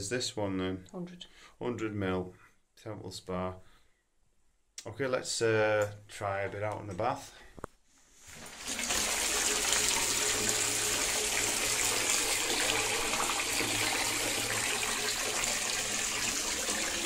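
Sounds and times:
tap water pouring into bathtub: 8.3 - 17.0.

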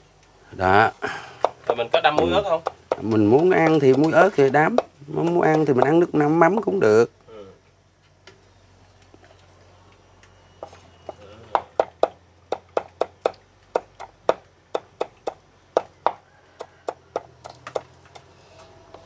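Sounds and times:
knife chopping on wooden board: 1.4 - 6.0.

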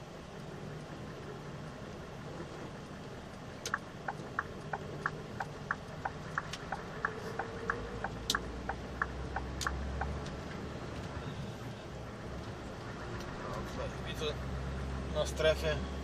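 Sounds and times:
truck engine running: 0.0 - 16.0
turn signal ticking: 2.8 - 11.3.

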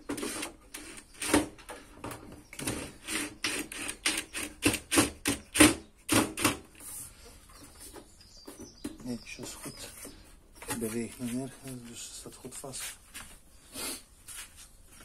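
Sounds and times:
drill driving screws into wood: 2.6 - 6.7.

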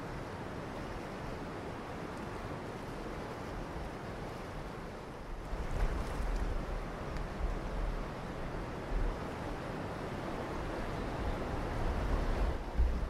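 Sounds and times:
river rushing: 0.0 - 13.0
wind buffeting microphone: 2.6 - 13.0.

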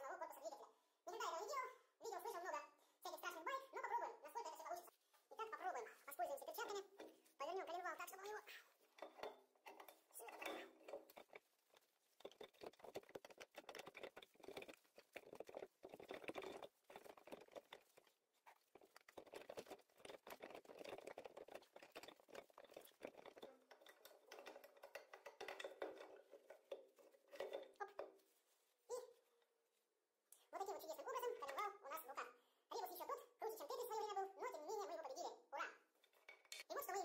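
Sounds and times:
metal engine parts clicking and clattering: 6.2 - 28.3.

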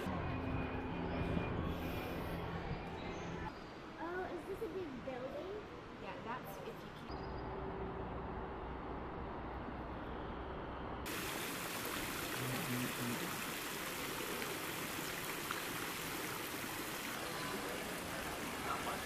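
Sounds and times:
running water rushing: 11.1 - 19.0.

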